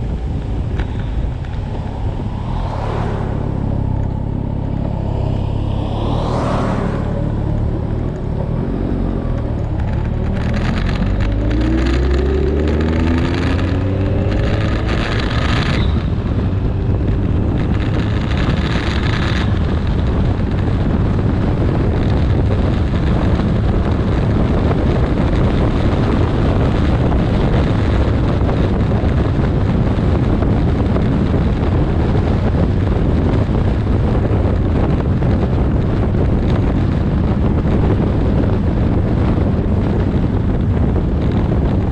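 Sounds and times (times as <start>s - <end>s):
motorcycle engine revving: 0.0s - 29.3s
wind rush over microphone: 0.0s - 41.9s.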